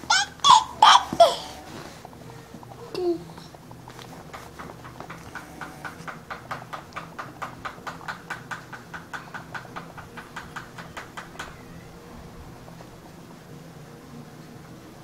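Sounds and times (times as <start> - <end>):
rapid sharp clicks: 3.9 - 11.6.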